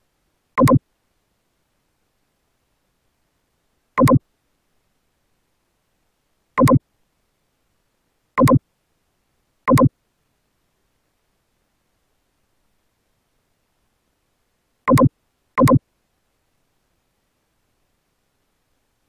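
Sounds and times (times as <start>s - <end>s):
mouse button double clicks: 0.6s - 0.8s, 4.0s - 4.2s, 6.6s - 6.8s, 8.4s - 8.6s, 9.7s - 9.9s, 14.9s - 15.8s.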